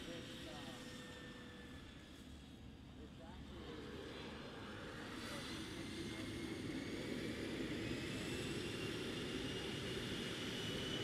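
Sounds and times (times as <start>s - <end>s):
jet engine rumble and whine: 0.0s - 11.0s.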